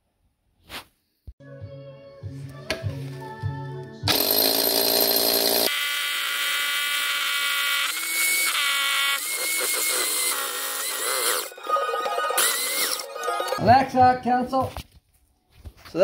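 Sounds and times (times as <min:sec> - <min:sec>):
hammer drill boring masonry: 0:04.1 - 0:11.7.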